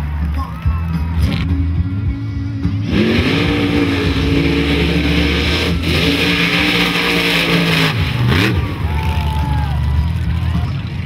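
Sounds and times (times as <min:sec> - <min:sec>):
truck engine revving: 0:02.5 - 0:11.0.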